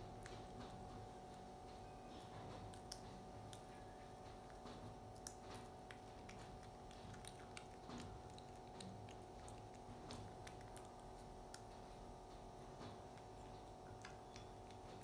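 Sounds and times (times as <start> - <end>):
low steady hum: 0.0 - 15.0
monkey chewing crunchy clicks: 4.4 - 11.8, 13.1 - 15.0.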